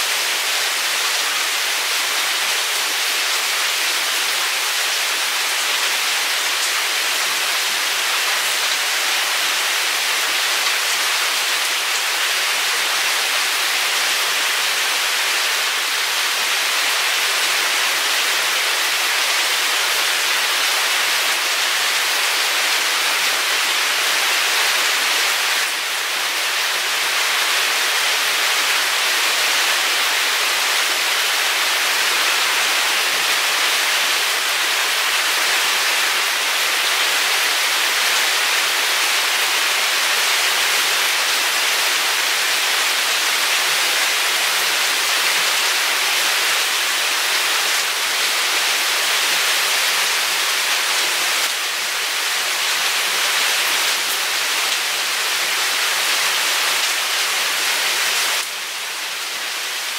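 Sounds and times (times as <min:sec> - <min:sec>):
steady rain falling: 0:00.0 - 0:59.9.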